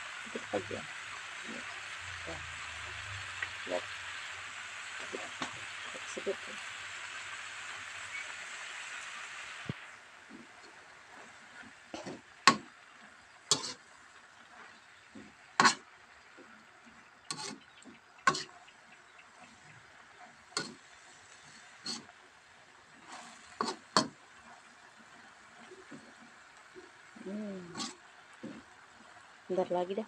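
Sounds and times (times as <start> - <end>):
faint sizzle: 0.0 - 30.0
spatula scraping a wok: 10.4 - 15.8, 17.3 - 18.7, 19.3 - 22.2, 23.0 - 24.7, 27.7 - 28.7.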